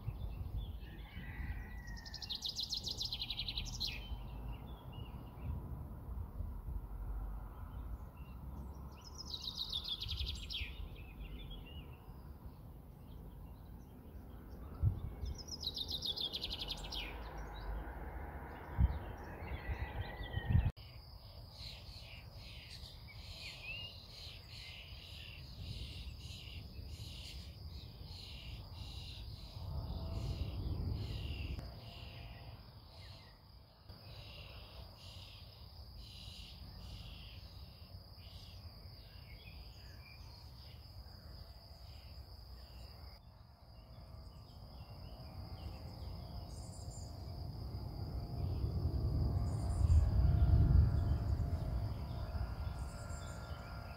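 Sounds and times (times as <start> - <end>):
crickets trilling: 13.4 - 53.9
distant thunder rumble: 29.8 - 31.6, 47.8 - 53.9.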